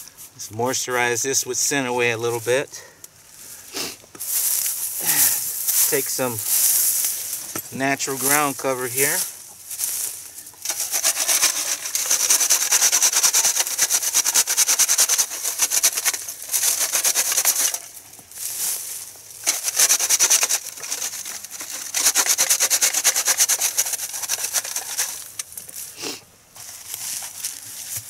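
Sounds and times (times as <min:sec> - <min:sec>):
dirt rasping through wire screen: 0:04.2 - 0:28.0.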